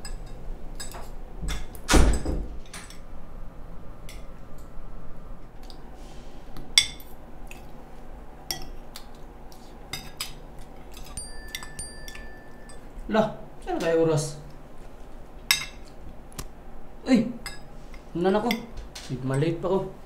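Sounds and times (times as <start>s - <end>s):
cutlery clinking on plates: 0.0s - 1.8s, 9.9s - 12.9s.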